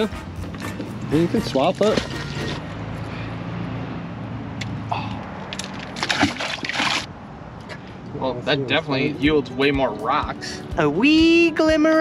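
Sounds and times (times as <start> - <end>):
magnet splashing into water: 5.5 - 7.1.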